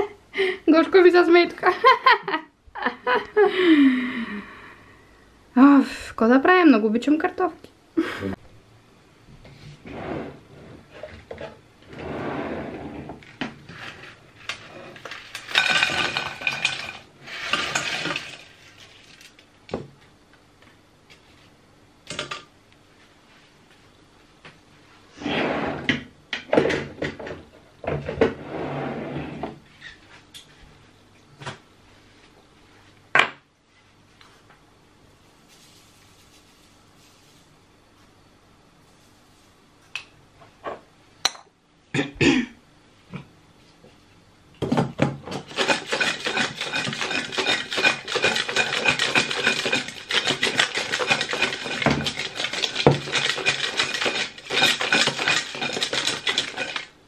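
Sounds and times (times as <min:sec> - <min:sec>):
potato wedges rattling in pot: 0:15.0 - 0:19.4, 0:45.4 - 0:57.0.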